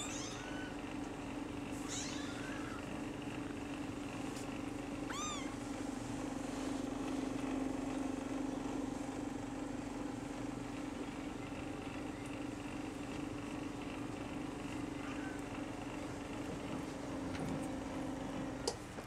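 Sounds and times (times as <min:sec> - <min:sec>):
kitten mewing: 0:00.0 - 0:00.8, 0:01.8 - 0:03.0, 0:05.1 - 0:05.6
steady low hum: 0:00.0 - 0:19.0.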